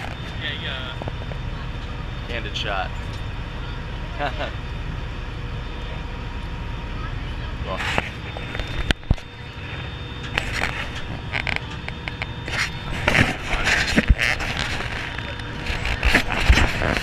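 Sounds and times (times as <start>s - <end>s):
boat engine running: 0.0s - 17.0s
knocks and creaks: 10.2s - 17.0s.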